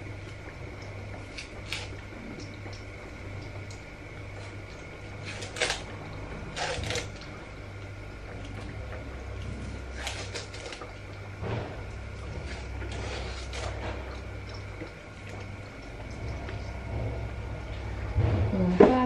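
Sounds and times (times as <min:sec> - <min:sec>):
steady low hum: 0:00.0 - 0:19.0
rustling scraping handling noises: 0:12.3 - 0:14.1.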